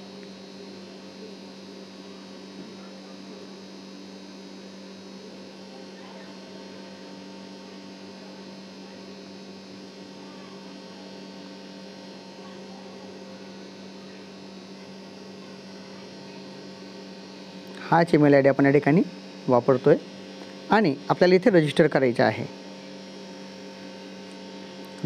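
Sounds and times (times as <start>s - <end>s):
electrical hum: 0.0s - 25.0s.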